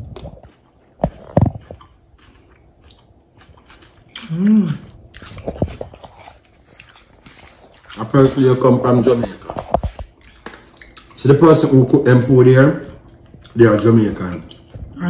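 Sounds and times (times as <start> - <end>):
chewing and biting: 0.0 - 12.0, 12.8 - 15.0
person humming: 4.2 - 4.9.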